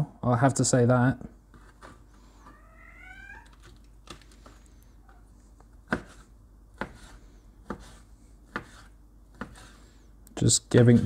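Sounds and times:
cat meowing: 2.4 - 3.7
knife chopping on plastic board: 5.8 - 9.8.

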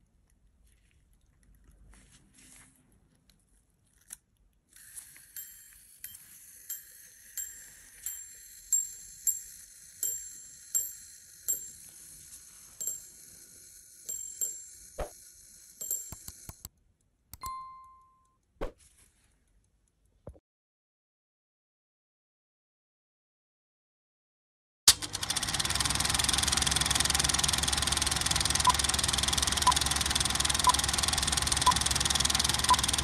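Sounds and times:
pocket watch bell striking: 5.4 - 12.0, 12.8 - 13.2, 14.0 - 15.1, 15.8 - 16.5, 17.4 - 18.3
short electronic ding: 17.4 - 18.3.

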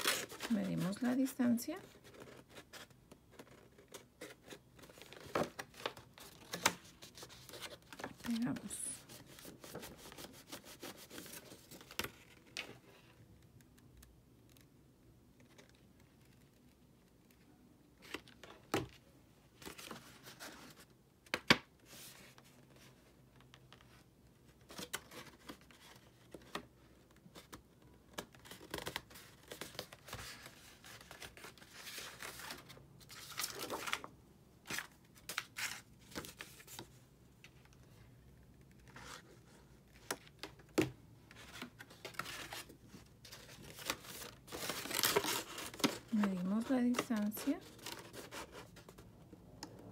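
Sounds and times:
paper rustling and scraping: 0.0 - 12.8, 41.3 - 49.1.

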